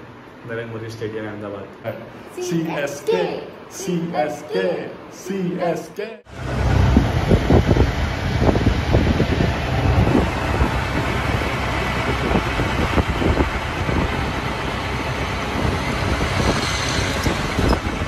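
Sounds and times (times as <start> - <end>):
wind and road noise: 6.3 - 18.0.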